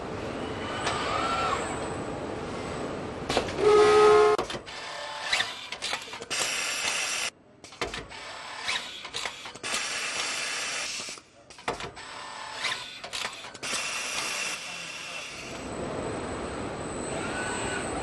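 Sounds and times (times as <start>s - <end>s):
machinery clicking and whirring: 4.4s - 18.0s.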